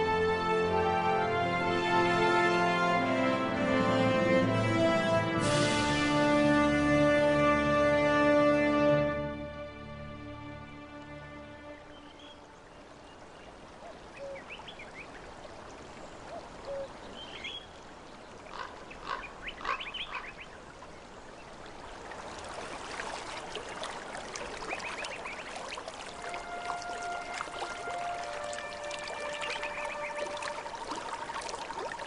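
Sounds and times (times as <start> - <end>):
running water: 0.0 - 32.0
short bird calls: 18.5 - 20.6.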